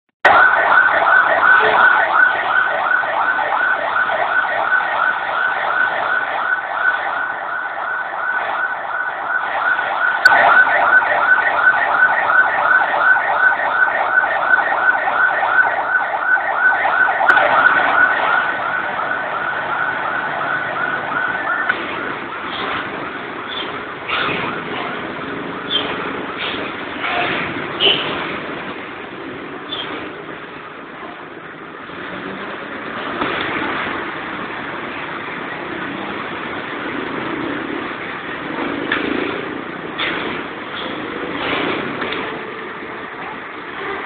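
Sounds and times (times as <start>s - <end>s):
siren yelping: 0.2s - 26.1s.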